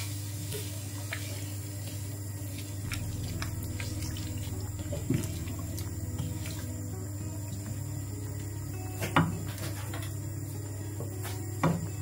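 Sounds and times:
wet sloshing simmer in a pan: 0:00.0 - 0:08.0
steady low hum: 0:00.0 - 0:12.0.

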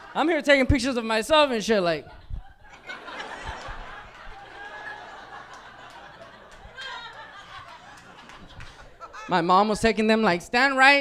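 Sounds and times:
audience laughing: 0:02.1 - 0:09.5.

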